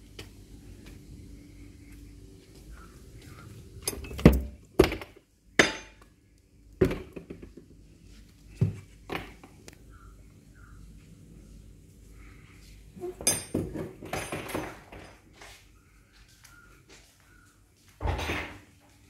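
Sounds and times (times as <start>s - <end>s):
wooden door knocks and clinks: 6.8s - 7.5s, 13.2s - 15.2s, 18.0s - 18.6s.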